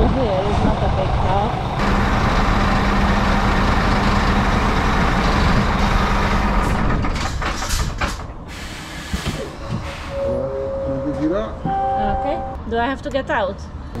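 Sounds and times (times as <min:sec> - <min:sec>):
diesel lorry engine humming: 0:00.0 - 0:09.1
short air hisses: 0:08.5 - 0:10.1.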